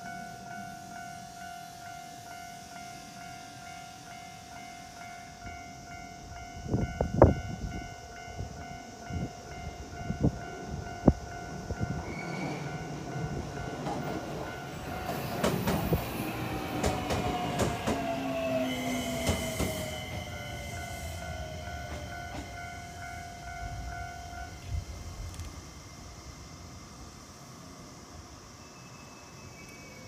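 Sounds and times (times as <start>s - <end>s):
level-crossing warning bell: 0.0s - 25.3s, 28.4s - 30.0s
rumble of train cars: 0.0s - 30.0s
train wheel knocks on rail joints: 16.8s - 18.1s.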